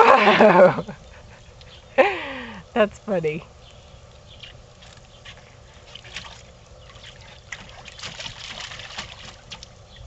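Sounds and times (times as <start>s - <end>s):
shallow water splashing: 4.2s - 9.9s.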